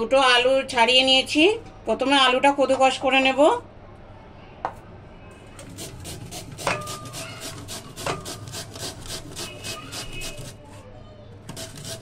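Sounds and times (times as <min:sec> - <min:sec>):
potato scraping on a grater: 0:05.6 - 0:10.8, 0:11.5 - 0:12.0
grater knocking on steel bowl: 0:06.4 - 0:10.6.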